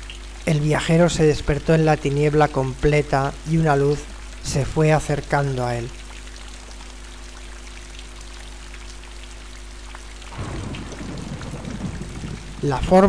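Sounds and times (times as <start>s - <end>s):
steady rain-like hiss: 0.0s - 13.0s
low rumbling: 10.3s - 13.0s.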